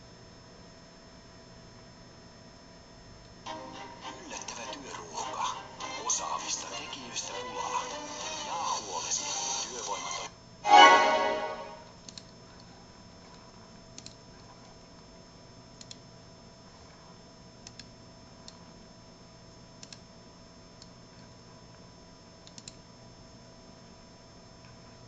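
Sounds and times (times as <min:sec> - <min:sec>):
faint electrical whine: 0:00.0 - 0:25.0
broadcast sound: 0:03.5 - 0:12.0
computer mouse clicks: 0:12.0 - 0:12.7, 0:14.0 - 0:14.2, 0:15.8 - 0:16.0, 0:17.6 - 0:18.6, 0:19.8 - 0:20.0, 0:22.4 - 0:22.8.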